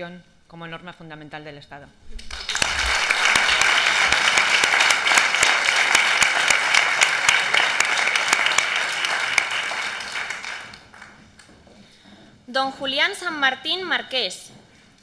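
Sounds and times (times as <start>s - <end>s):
crowd applauding: 2.2s - 11.5s.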